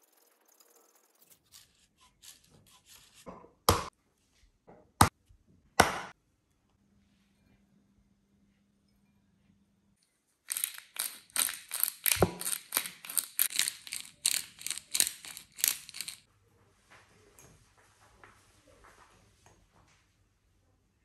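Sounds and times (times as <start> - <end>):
pepper mill grinding: 0.0 - 3.2, 10.5 - 16.3.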